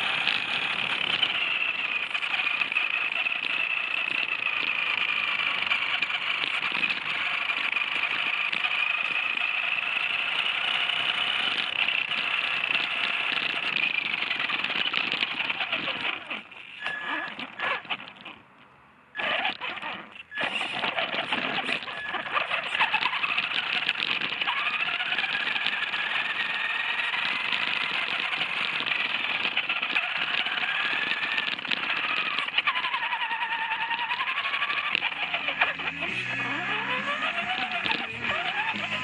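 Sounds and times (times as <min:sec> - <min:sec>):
electric motor whining: 0:00.0 - 0:39.0
tyres crunching on gravel: 0:20.3 - 0:39.0.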